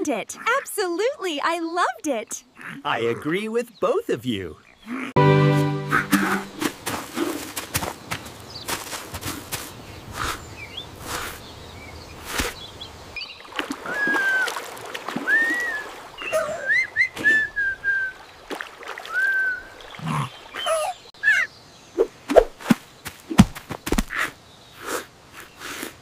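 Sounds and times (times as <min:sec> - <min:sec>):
water splashing: 0:13.2 - 0:21.1
whistled chirps: 0:13.9 - 0:14.6, 0:15.2 - 0:18.2, 0:19.1 - 0:19.8.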